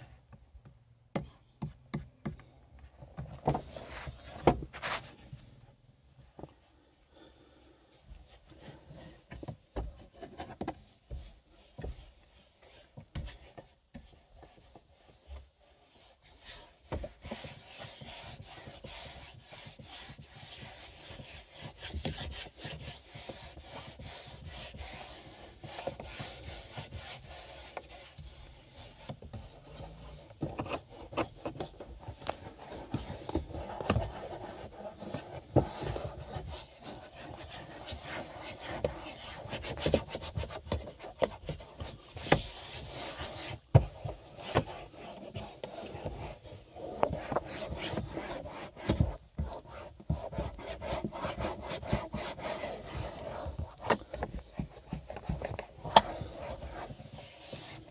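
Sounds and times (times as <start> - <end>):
hand rubbing greasy plastic: 6.2 - 57.9.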